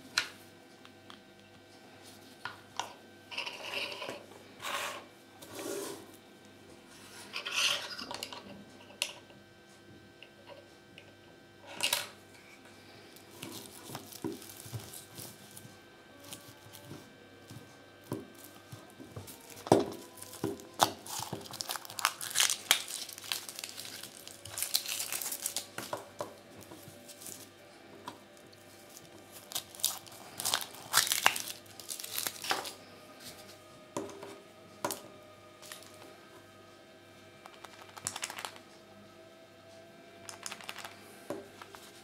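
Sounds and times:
foil wrapper crinkling: 13.3s - 16.8s, 18.3s - 27.5s, 28.4s - 32.8s, 37.5s - 38.6s, 40.3s - 41.0s.

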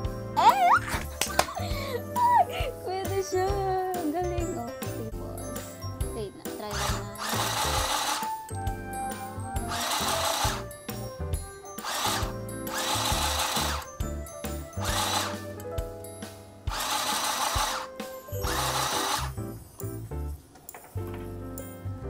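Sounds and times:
sewing machine motor running: 6.7s - 8.4s, 9.7s - 10.7s, 11.8s - 13.9s, 14.8s - 15.4s, 16.7s - 19.4s.

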